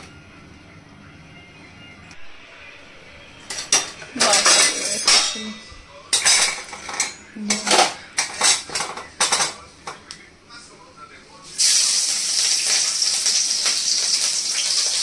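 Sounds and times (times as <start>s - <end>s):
metal utensils clattering on a pot: 3.4s - 10.0s.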